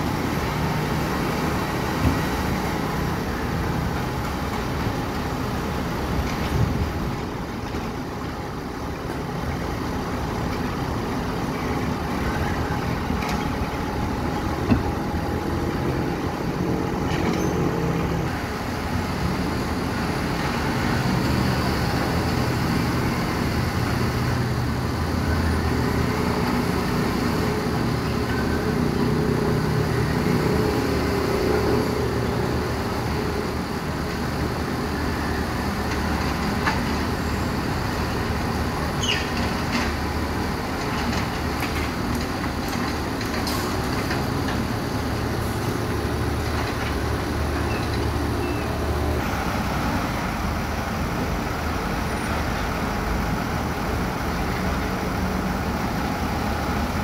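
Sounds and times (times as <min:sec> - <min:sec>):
diesel engine running under load: 0:00.0 - 0:57.0.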